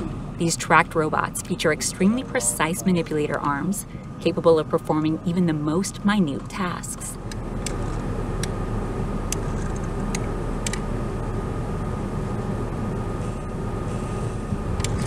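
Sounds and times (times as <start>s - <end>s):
high whine: 0.0s - 9.4s
mechanical rumble: 0.0s - 15.0s.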